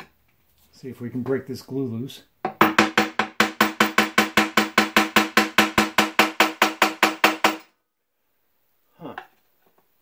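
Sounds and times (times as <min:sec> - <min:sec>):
rapid hammer blows on metal: 0:02.6 - 0:07.7.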